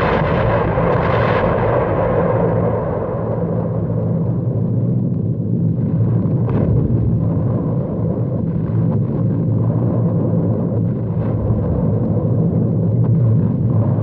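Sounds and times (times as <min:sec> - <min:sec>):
bombs exploding: 0:00.0 - 0:03.8, 0:05.8 - 0:07.7.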